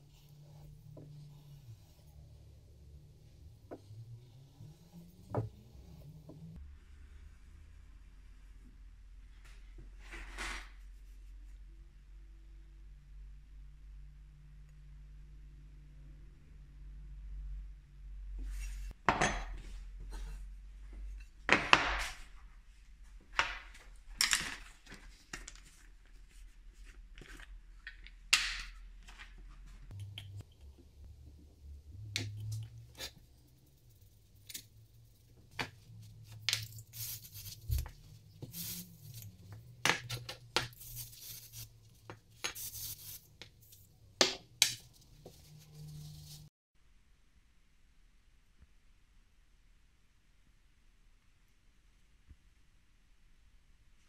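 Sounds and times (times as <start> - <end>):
aerosol can spraying: 42.5 - 43.3.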